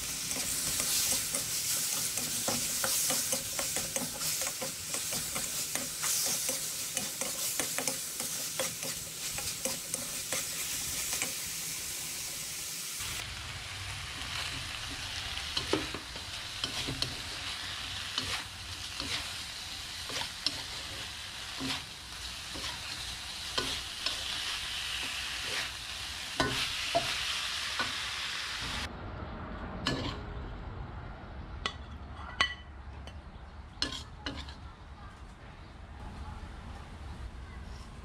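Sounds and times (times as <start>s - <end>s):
metal spatula scraping wok: 0.0s - 12.5s, 14.2s - 25.8s, 29.8s - 30.3s
meat sizzling in a wok: 0.0s - 28.9s.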